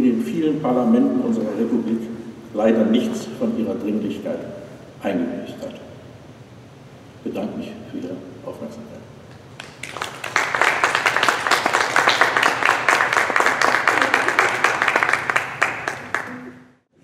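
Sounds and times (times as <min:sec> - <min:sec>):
audience applauding: 0:09.6 - 0:16.6.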